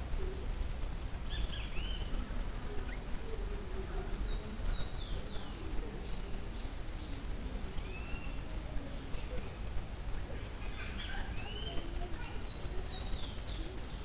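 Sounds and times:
low rumble and hiss: 0.0 - 14.0
small birds whistling: 1.3 - 3.1, 7.8 - 8.5, 10.6 - 14.0.

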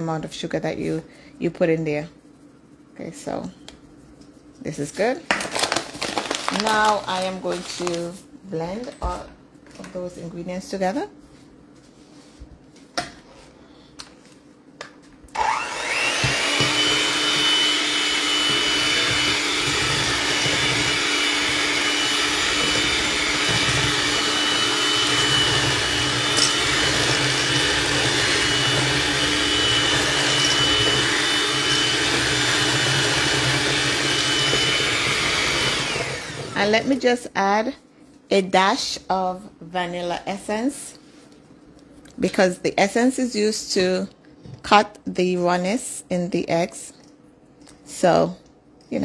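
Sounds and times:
electric hand mixer whining: 15.3 - 37.1.

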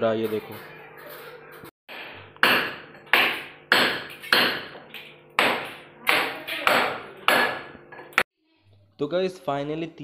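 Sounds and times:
hammer striking metal channel: 1.9 - 8.2.

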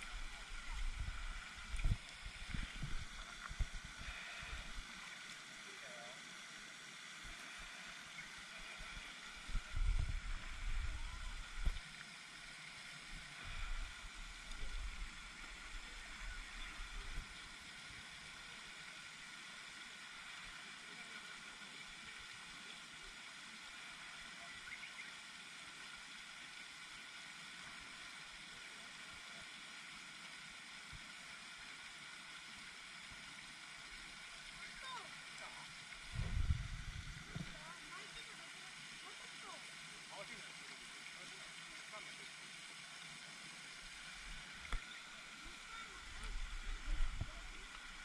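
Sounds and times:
wind rumbling on microphone: 0.0 - 4.8, 9.4 - 11.8, 36.1 - 37.6, 46.3 - 47.6
faint hiss: 0.0 - 48.0
fountain water spraying: 0.0 - 48.0.

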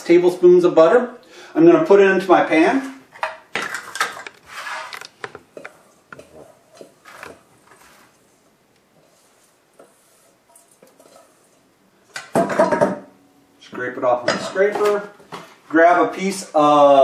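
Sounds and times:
utensil scraping a metal bowl: 4.4 - 5.0, 5.6 - 11.7.

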